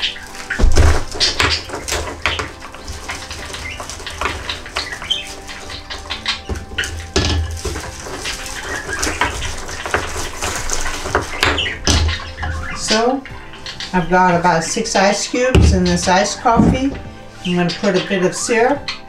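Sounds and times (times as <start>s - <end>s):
plastic bag crinkling: 0.0s - 12.9s.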